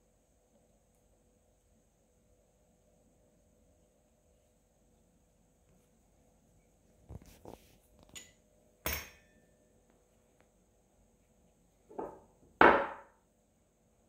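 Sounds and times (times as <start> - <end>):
metal tools knocking on wooden table: 11.9 - 13.1.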